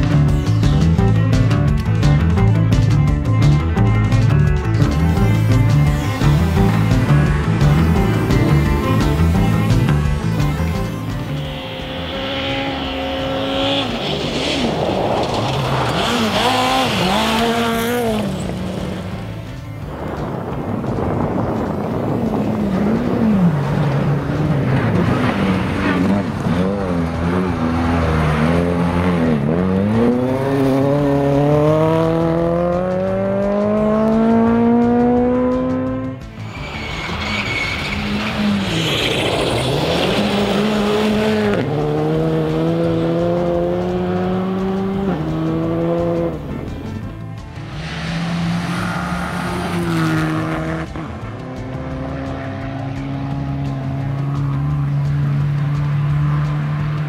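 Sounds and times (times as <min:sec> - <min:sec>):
rally car engine at full throttle: 0:00.0 - 0:57.0
tyres hissing on gravel: 0:47.6 - 0:49.7.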